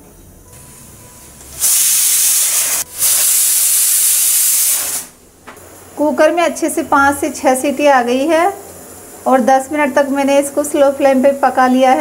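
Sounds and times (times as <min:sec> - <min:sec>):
pressure cooker whistling: 0:01.5 - 0:05.1.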